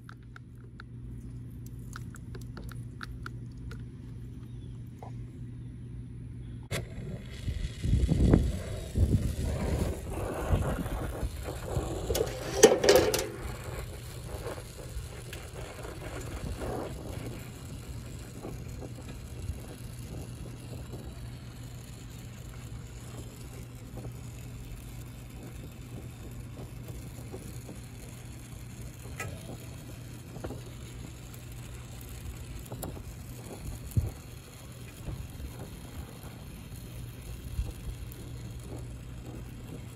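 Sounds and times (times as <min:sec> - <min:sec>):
steady low hum: 0:00.0 - 0:39.9
metal clatter and scrape: 0:11.6 - 0:13.9.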